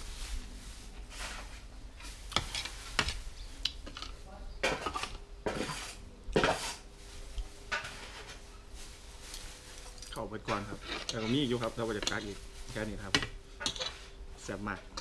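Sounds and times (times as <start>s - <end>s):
cutlery clinking on plates: 13.2s - 14.0s.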